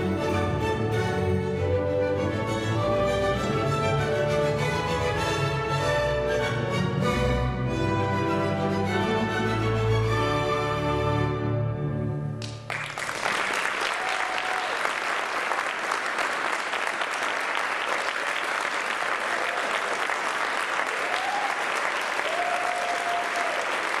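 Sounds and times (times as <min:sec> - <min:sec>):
stage music: 0:00.0 - 0:24.0
audience applause: 0:12.4 - 0:24.0
audience cheers: 0:13.1 - 0:15.8, 0:17.6 - 0:24.0.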